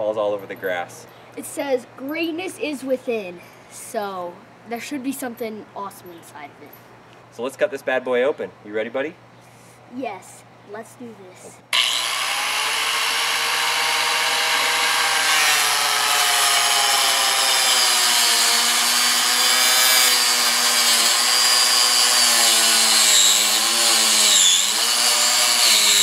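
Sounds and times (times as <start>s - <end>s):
electric power saw whining: 11.7s - 26.0s.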